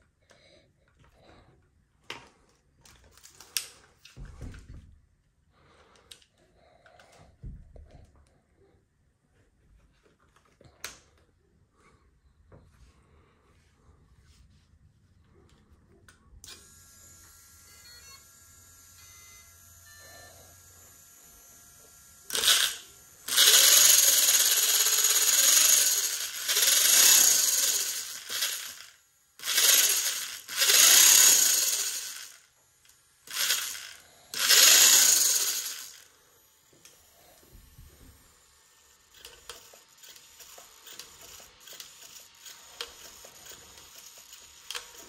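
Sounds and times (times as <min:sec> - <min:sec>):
electric motor revving: 0:16.5 - 0:32.5, 0:33.2 - 0:37.7, 0:38.8 - 0:45.0
chain-driven wheel spinning: 0:22.3 - 0:32.4, 0:33.3 - 0:36.0, 0:39.1 - 0:45.0.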